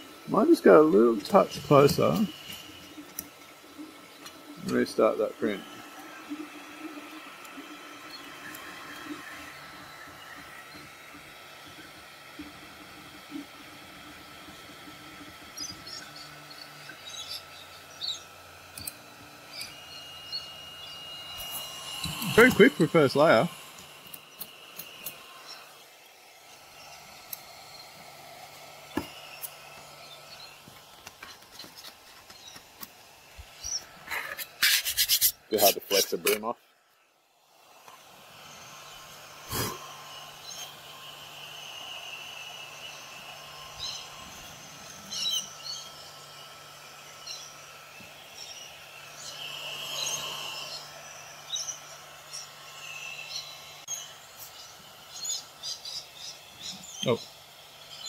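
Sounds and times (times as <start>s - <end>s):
faint whine: 0.0s - 32.6s
cooling fans humming: 0.0s - 58.0s
small clicks: 18.0s - 19.8s
plastic sheet rubbing and scraping: 34.0s - 36.4s.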